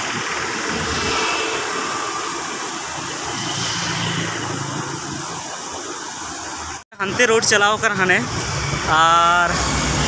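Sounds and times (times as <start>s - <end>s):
vehicle engines passing: 0.0s - 6.4s
steady traffic hiss: 0.0s - 10.0s.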